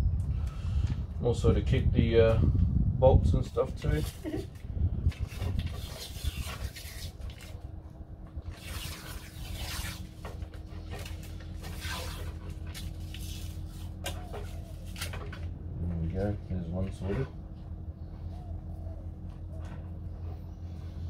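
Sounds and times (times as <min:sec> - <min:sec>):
steady low hum: 0:00.0 - 0:21.0
masking tape ripping off roll: 0:05.2 - 0:07.6, 0:08.4 - 0:10.4, 0:11.0 - 0:15.1.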